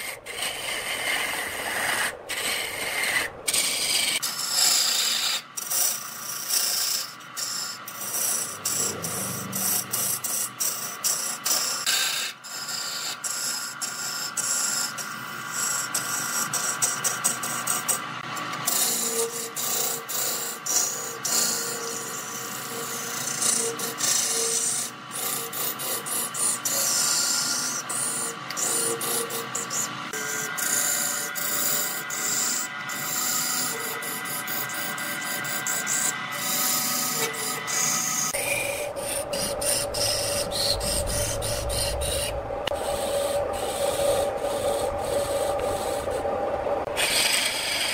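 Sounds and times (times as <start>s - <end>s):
wood lathe tool scraping shavings: 0.0s - 47.9s.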